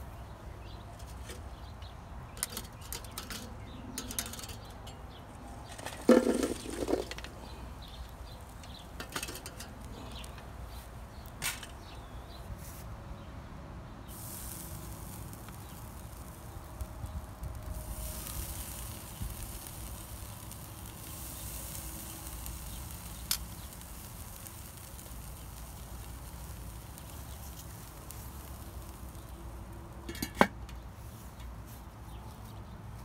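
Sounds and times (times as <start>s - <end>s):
grill lid metal clank: 5.8s - 7.3s, 9.0s - 9.8s, 30.1s - 30.7s
food sizzling on grill: 6.2s - 12.0s, 14.0s - 30.9s.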